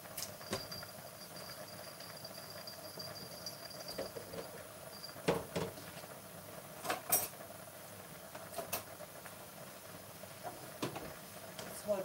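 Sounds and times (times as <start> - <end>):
faint steady hiss: 0.0 - 12.0
kitchen knocks and clinks: 0.4 - 0.9, 2.2 - 5.8.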